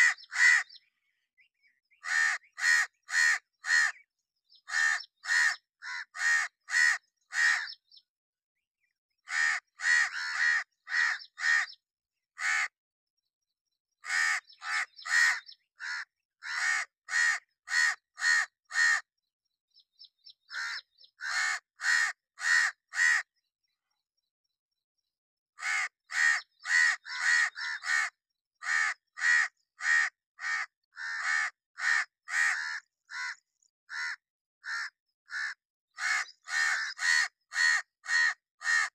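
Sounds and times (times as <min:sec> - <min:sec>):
crow cawing: 0:00.0 - 0:00.8, 0:02.0 - 0:04.0, 0:04.6 - 0:07.8, 0:09.2 - 0:11.8, 0:12.4 - 0:12.8, 0:14.0 - 0:19.1, 0:20.4 - 0:23.3, 0:25.6 - 0:38.9.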